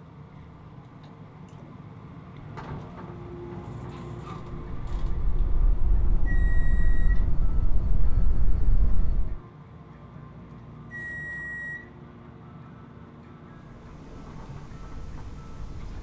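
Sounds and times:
elevator rumbling: 2.8s - 9.4s, 13.6s - 16.0s
high electronic beep: 6.0s - 9.4s.

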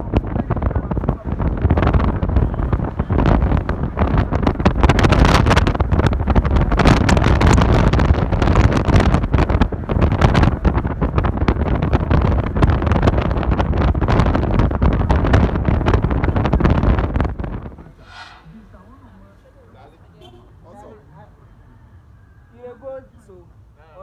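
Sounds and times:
wind buffeting microphone: 0.0s - 19.3s.

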